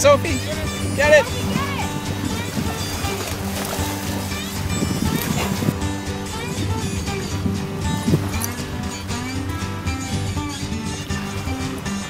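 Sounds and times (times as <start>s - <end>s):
guitar playing held notes: 0.0s - 12.0s.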